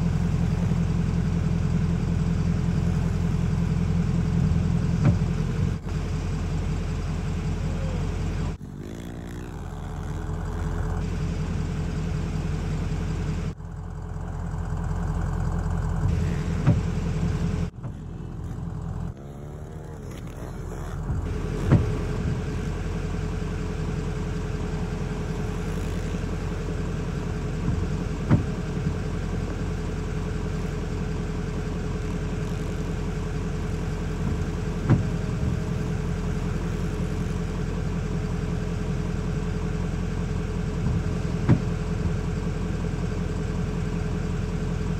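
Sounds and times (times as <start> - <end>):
small motorbike engines revving: 7.5 - 11.2, 16.0 - 30.8.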